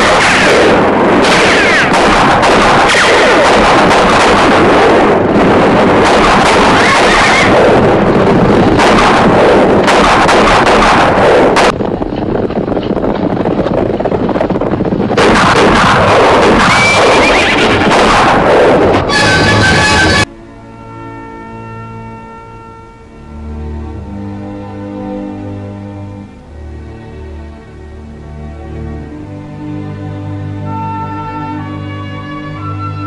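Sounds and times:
gunshots: 0.0s - 11.9s, 14.4s - 20.3s
horses galloping: 8.8s - 18.0s
horses whinnying: 16.6s - 17.9s.

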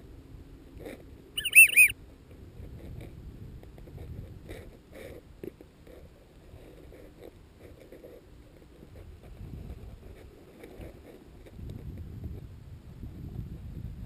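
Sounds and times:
wind rumbling on microphone: 0.0s - 14.0s
faint short sounds: 1.4s - 1.9s.

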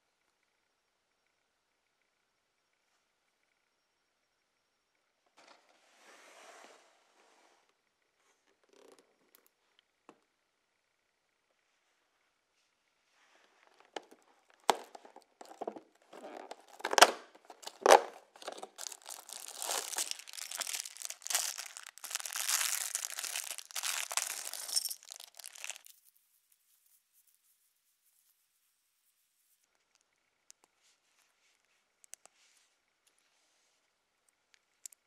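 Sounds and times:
plastic bag crinkling and tearing: 14.0s - 26.0s.

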